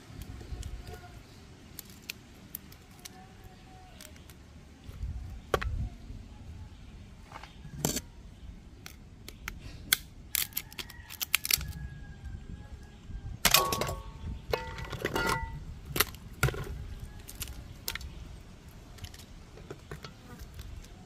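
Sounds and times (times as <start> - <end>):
crab shells cracking: 0.1 - 4.5, 8.7 - 11.8.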